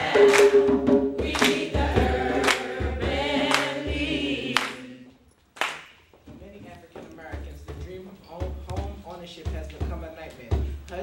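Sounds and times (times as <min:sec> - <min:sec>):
sharp beat: 0:00.0 - 0:05.0, 0:06.4 - 0:11.0
young voices singing in chorus: 0:00.0 - 0:05.2.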